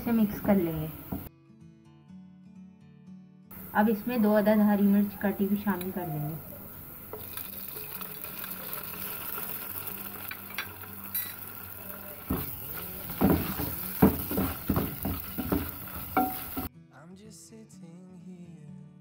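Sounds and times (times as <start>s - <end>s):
onions sizzling in hot oil: 5.0s - 16.7s
wooden spoon scraping a pot: 12.2s - 16.7s.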